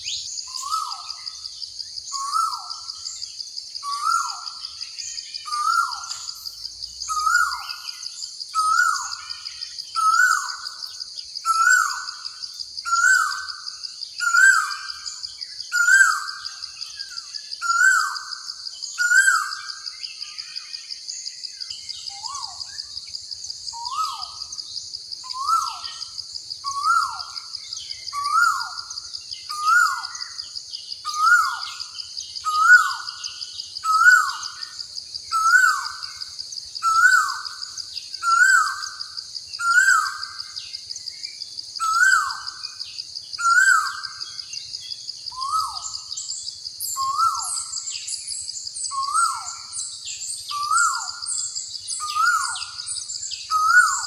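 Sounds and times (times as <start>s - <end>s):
birds chirping: 41.8s - 54.0s.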